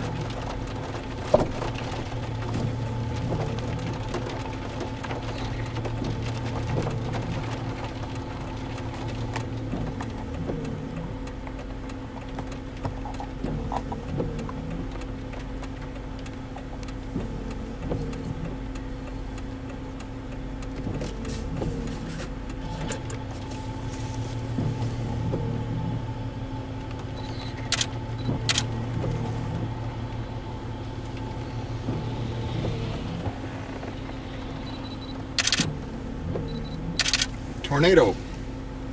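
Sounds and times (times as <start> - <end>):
car engine idling: 0.0 - 38.9
sharp clicks: 26.8 - 29.2, 34.6 - 35.8, 36.4 - 38.0.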